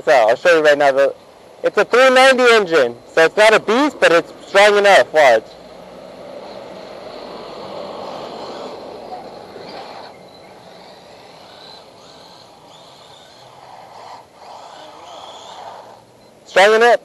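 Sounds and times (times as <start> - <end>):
toy car electric motor whirring: 7.1 - 16.1.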